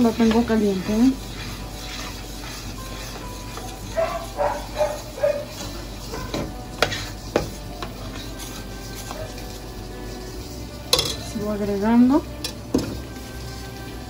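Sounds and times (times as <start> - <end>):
utensil stirring sauce in pot: 0.0 - 14.0
utensil clinking on pot: 10.9 - 11.4.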